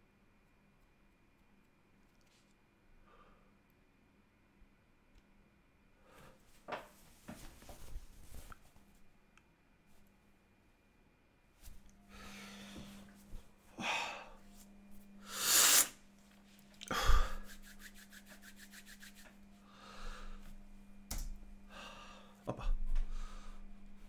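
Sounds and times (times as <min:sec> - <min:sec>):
sniffs: 0:15.2 - 0:16.0
shaky breaths: 0:16.8 - 0:17.8.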